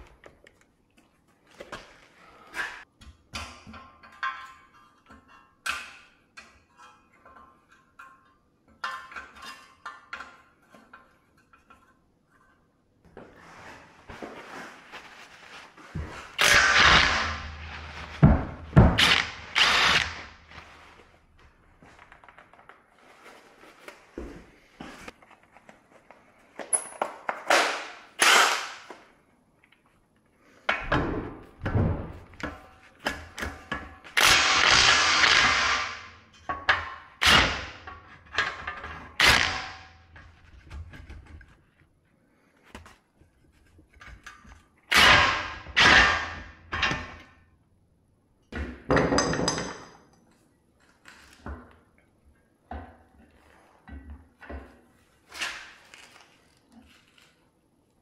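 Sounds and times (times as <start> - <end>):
tools knocking and clattering: 3.0 - 12.6, 26.6 - 27.6, 48.5 - 50.4.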